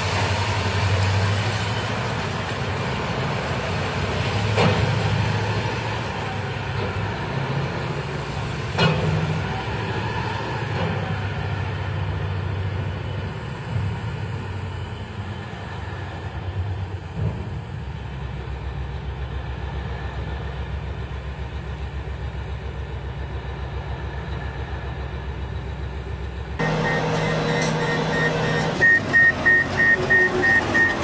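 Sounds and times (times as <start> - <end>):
heavy mining machinery: 0.0 - 31.0
truck engine rumbling: 0.0 - 31.0
backup alarm beeping: 26.6 - 31.0.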